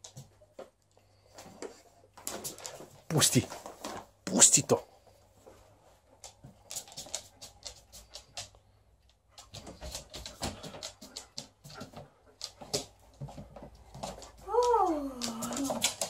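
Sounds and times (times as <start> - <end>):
dog claws clicking on hard floor: 1.5 - 4.5, 6.2 - 16.0.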